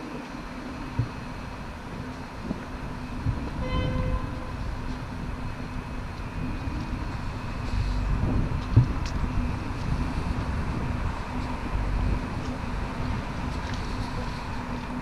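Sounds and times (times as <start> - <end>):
low rumble of city traffic: 0.0 - 15.0
short car horn toot: 3.6 - 4.4.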